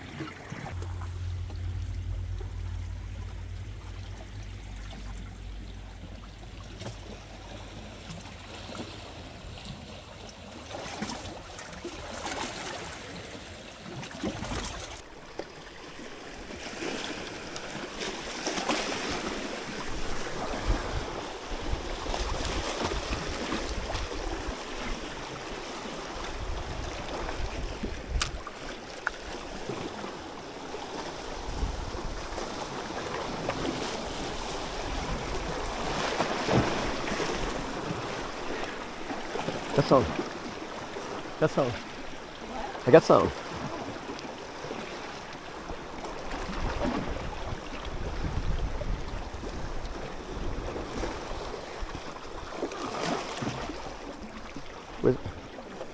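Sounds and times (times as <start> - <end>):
seawater sloshing: 0.0 - 55.9
waves breaking: 0.0 - 55.9
low steady hum: 0.3 - 9.6.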